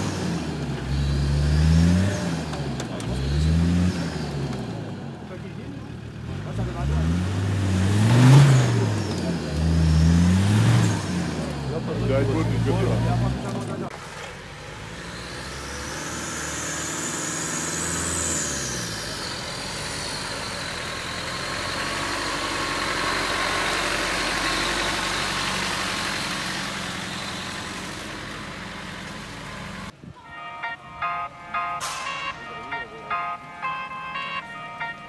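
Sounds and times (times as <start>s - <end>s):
engine revving under load: 0.0s - 30.0s
music: 30.3s - 35.0s.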